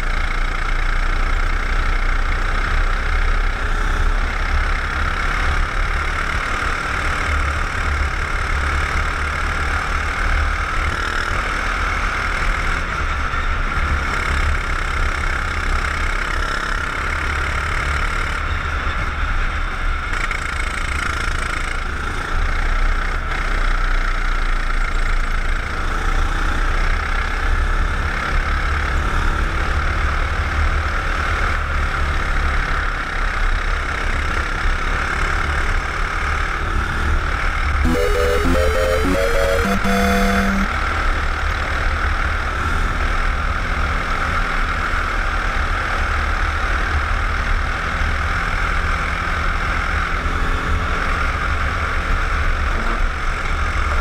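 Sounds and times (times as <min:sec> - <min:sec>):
kart engine drone: 0:37.9 - 0:40.7.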